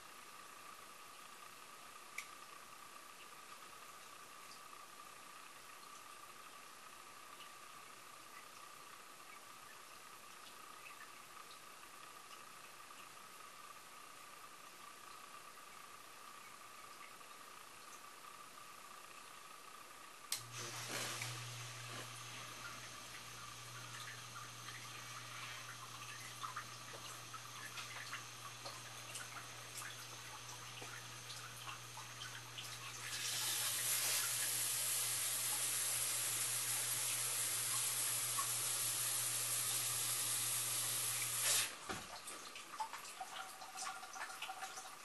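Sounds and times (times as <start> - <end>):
pump electric hum: 0.0 - 45.0
water dripping: 7.3 - 13.3, 14.2 - 18.1, 21.2 - 34.5, 41.1 - 45.0.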